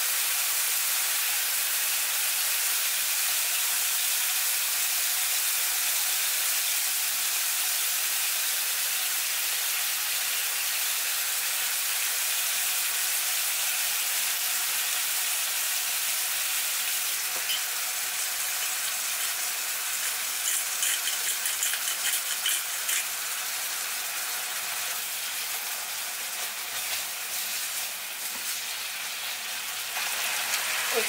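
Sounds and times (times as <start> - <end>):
meat sizzling in a wok: 0.0 - 31.0
spatula stirring meat: 17.0 - 23.3
pepper grinder clicks: 18.6 - 23.1.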